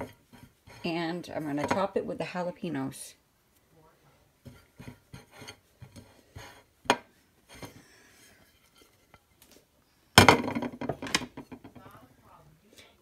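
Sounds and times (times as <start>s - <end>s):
taps and scrapes on ceramic plate: 0.0s - 1.9s, 4.4s - 7.8s.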